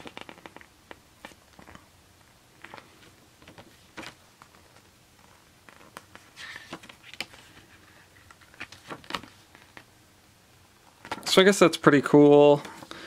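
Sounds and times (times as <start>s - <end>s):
paper booklet pages turning: 0.0s - 1.9s, 2.6s - 9.9s.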